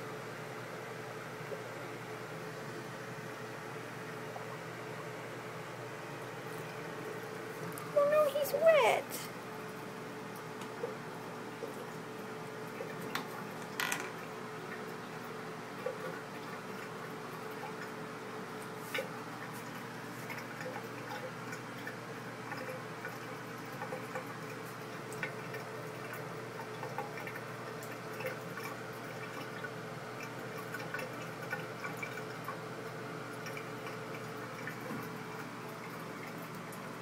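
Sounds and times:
tap water running into basin: 0:11.6 - 0:37.0
cat lapping water: 0:18.6 - 0:32.6, 0:33.3 - 0:36.8.

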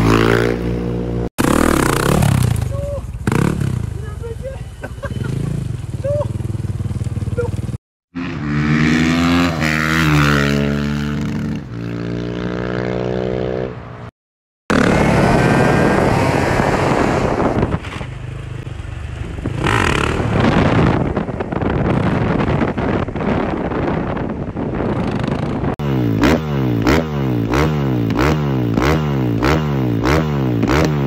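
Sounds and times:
dirt bike engine revving: 0:00.0 - 0:04.2, 0:05.0 - 0:13.7, 0:14.7 - 0:21.1, 0:25.0 - 0:31.0.

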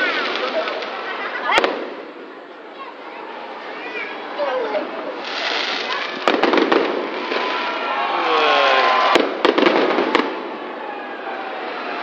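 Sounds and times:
fireworks exploding: 0:00.0 - 0:02.4, 0:04.9 - 0:10.8
continuous hiss: 0:00.0 - 0:12.0.

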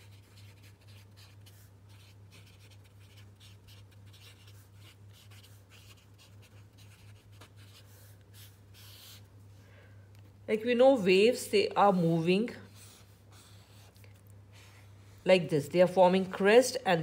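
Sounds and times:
marker pen writing on paper: 0:00.0 - 0:09.3, 0:12.7 - 0:14.2
steady low hum: 0:00.0 - 0:17.0.

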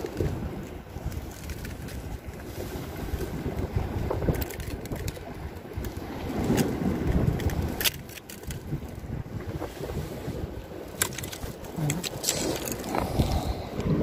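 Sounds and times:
wind rumble on microphone: 0:00.0 - 0:14.0
fishing pliers clicking and scraping: 0:10.9 - 0:13.4.

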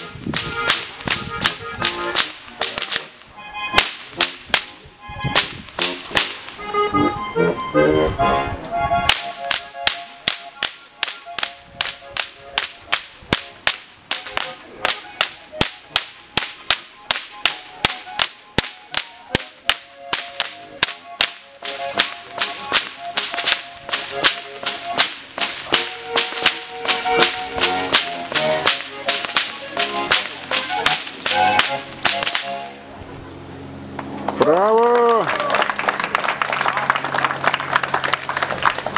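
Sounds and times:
whips cracking: 0:00.0 - 0:06.6, 0:09.1 - 0:32.7.

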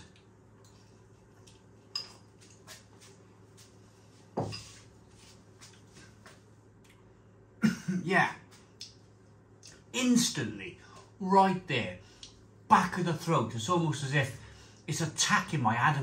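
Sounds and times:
quiet eating sounds: 0:00.0 - 0:07.4, 0:08.5 - 0:09.9
fork clinking on ceramic bowl: 0:01.9 - 0:02.3.

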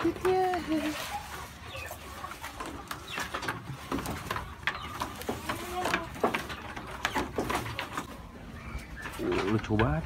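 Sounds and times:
hooves clattering on wooden floor: 0:02.2 - 0:10.0.

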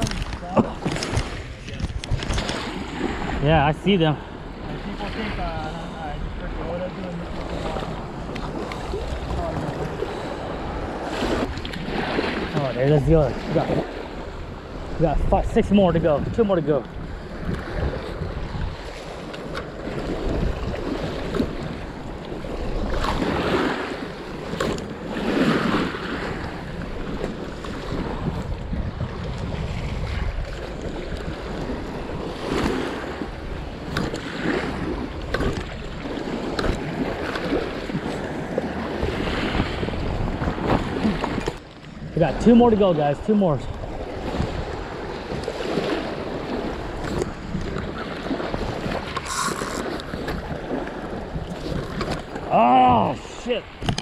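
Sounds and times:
water splashing at shoreline: 0:00.0 - 0:54.0
waves washing against rocks: 0:00.0 - 0:54.0
wind buffeting microphone: 0:00.0 - 0:54.0.

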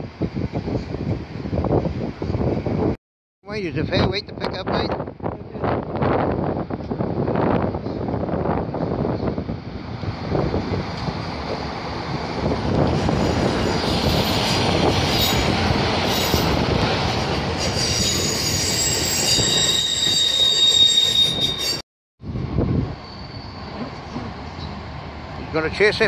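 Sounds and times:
diesel locomotive engine passing: 0:05.6 - 0:19.8, 0:22.2 - 0:26.0
high-pitched wheel squeal: 0:17.6 - 0:21.8, 0:23.0 - 0:24.3.

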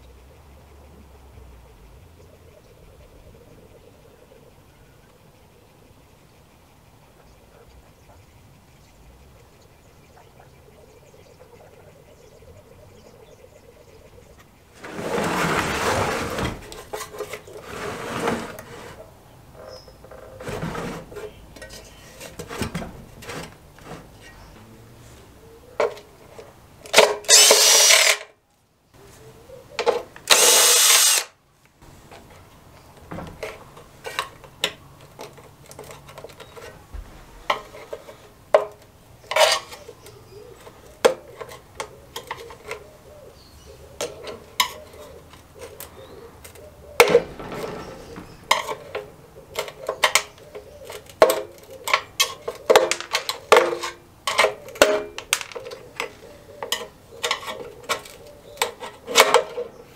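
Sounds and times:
tools and metal parts clinking: 0:26.9 - 0:28.3
cordless drill running: 0:27.3 - 0:28.2, 0:30.3 - 0:31.3.

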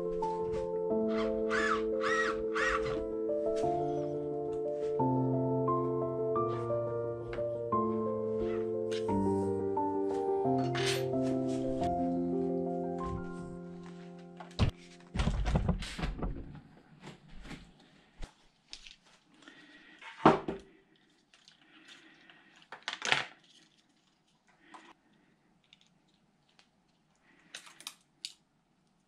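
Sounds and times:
metal parts and tools clattering: 0:10.6 - 0:11.1.

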